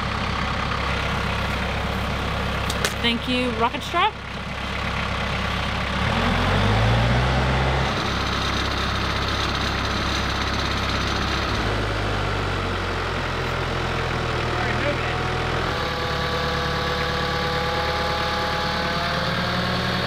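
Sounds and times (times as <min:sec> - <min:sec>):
tractor engine running: 0:00.0 - 0:20.0.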